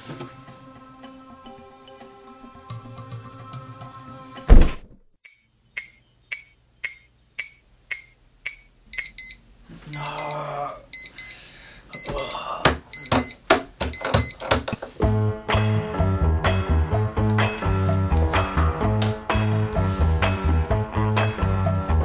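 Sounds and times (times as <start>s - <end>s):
clock ticking: 5.2s - 9.4s, 12.0s - 14.8s
alarm clock high beeps: 5.2s - 14.4s.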